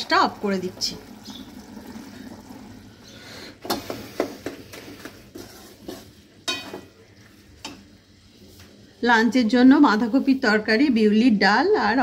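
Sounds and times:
spatula knocking and scraping pan: 3.7 - 7.0
wooden spatula stirring in wok: 3.8 - 10.6.

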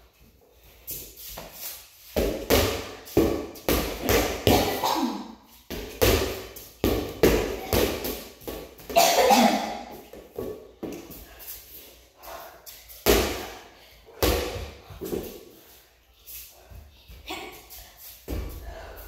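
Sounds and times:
rubber ball bouncing on concrete: 5.7 - 9.0.

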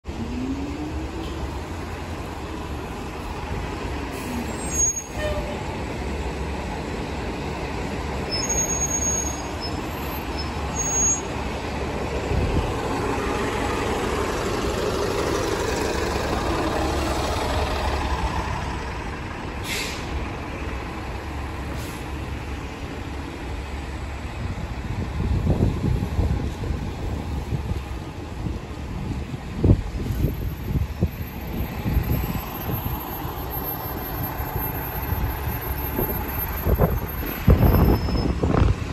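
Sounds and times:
bus engine running: 0.0 - 38.9
tyres hissing on wet pavement: 19.5 - 20.4, 21.6 - 22.9.

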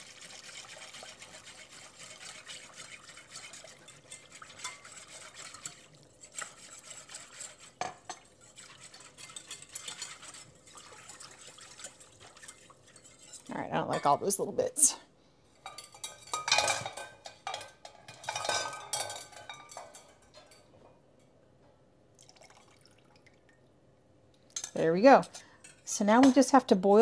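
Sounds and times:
whisk scraping a pan: 0.0 - 14.2
whisk knocking on pan: 0.3 - 14.0.

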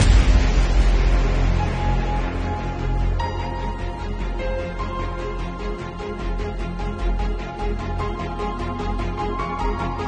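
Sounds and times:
crash: 0.0 - 3.3
music with deep bass: 0.0 - 10.0.

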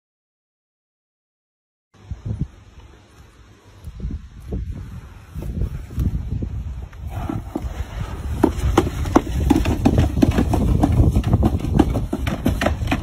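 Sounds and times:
plastic sled knocking and scraping: 7.0 - 13.0.

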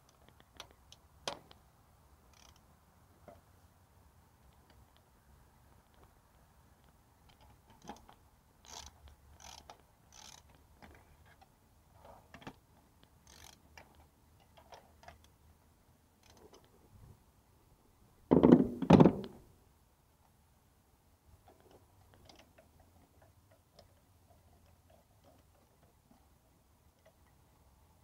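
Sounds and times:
ratchet and socket clicking: 2.3 - 2.6, 7.3 - 10.6, 13.2 - 15.3.

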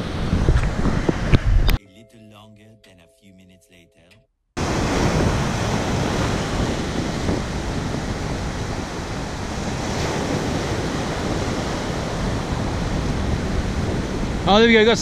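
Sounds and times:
wind rumbling on microphone: 0.0 - 1.8, 4.6 - 15.0
ocean surf breaking: 4.6 - 15.0.

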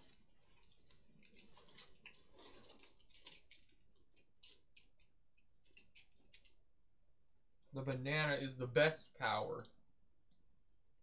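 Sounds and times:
small plastic parts clicking: 0.5 - 6.6.

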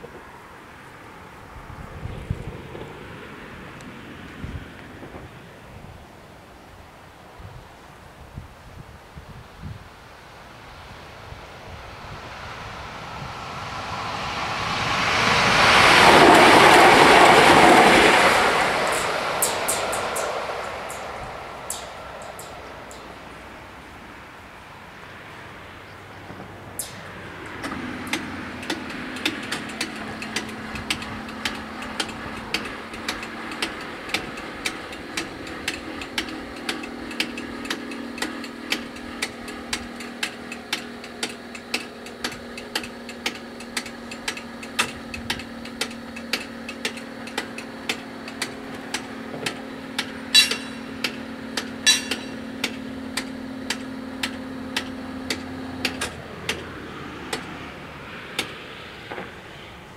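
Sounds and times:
level crossing bells ringing: 16.5 - 23.4, 49.8 - 52.6.

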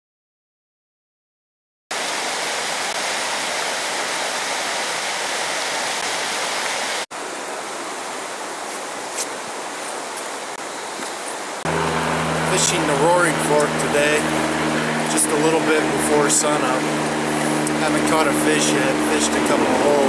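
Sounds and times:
river rushing over boulders: 1.9 - 20.0.

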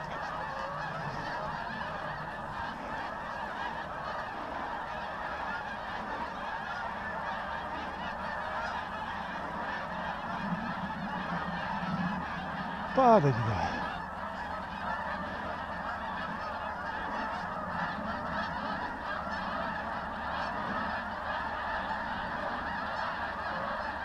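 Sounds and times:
flock of geese honking: 0.0 - 24.0.

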